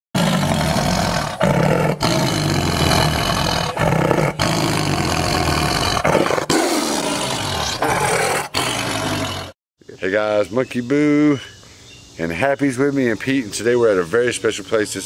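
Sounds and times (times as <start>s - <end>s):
big cats roaring: 0.2s - 9.6s.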